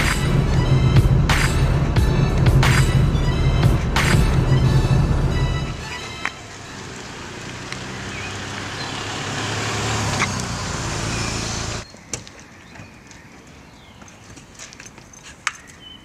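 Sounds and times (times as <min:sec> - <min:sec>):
car driving past: 0:00.0 - 0:11.8.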